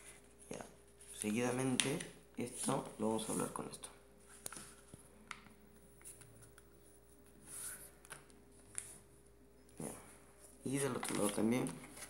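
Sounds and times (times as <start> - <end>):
paper rustling as it is folded: 10.6 - 12.0.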